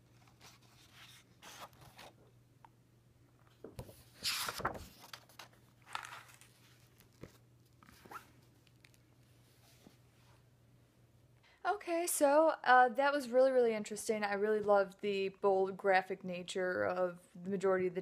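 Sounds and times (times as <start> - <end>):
book pages turning: 0.1 - 2.3, 3.5 - 10.0.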